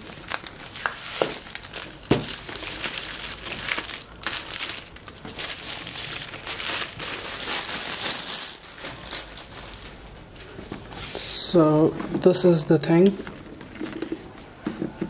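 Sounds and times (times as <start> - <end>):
plastic wrap snapping: 0.0 - 10.0
plastic wrap crinkling: 0.0 - 10.6.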